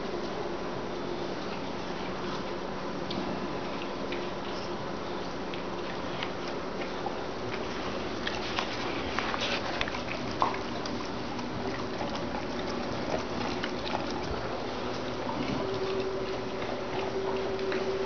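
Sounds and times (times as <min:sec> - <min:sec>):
dogs chewing and licking: 0:00.0 - 0:18.0.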